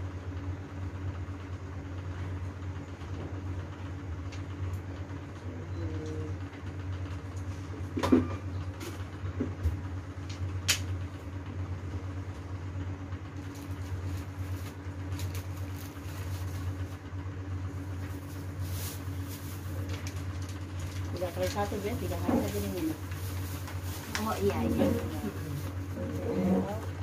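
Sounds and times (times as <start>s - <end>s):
steady low hum: 0.0s - 27.0s
faint rustling and tapping: 18.0s - 27.0s.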